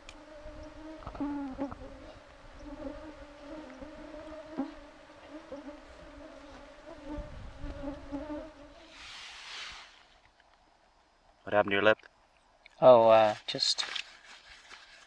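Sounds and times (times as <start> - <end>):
mosquitoes whining: 0.1 - 9.9.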